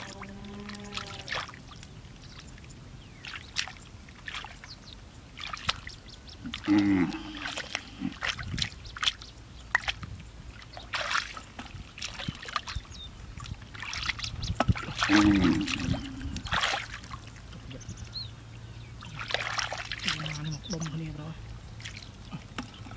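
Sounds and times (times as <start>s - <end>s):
hands splashing in muddy water: 3.2s - 4.7s, 5.4s - 17.8s, 18.9s - 21.0s, 21.8s - 22.9s.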